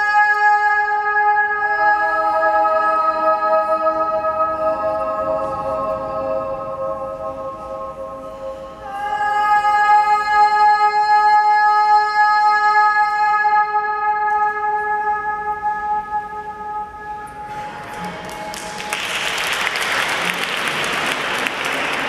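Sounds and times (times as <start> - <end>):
sung notes echoing: 0.0 - 22.0.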